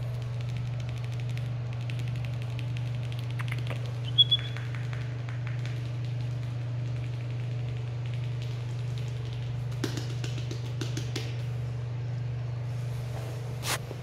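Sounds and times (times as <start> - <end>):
low electrical hum: 0.0 - 14.0
short high-pitched chirps: 4.1 - 4.6.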